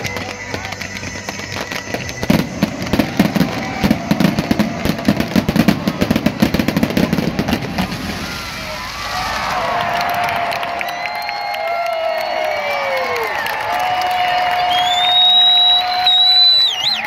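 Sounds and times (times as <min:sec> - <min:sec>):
fireworks popping: 0:00.0 - 0:11.2
fireworks crackle: 0:00.0 - 0:17.0.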